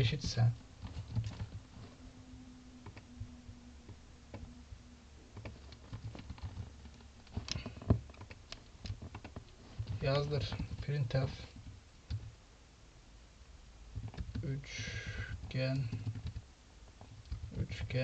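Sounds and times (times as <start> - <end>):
keyboard typing: 0.0 - 2.0, 2.8 - 4.6, 5.3 - 12.3, 14.0 - 14.5, 15.2 - 17.6.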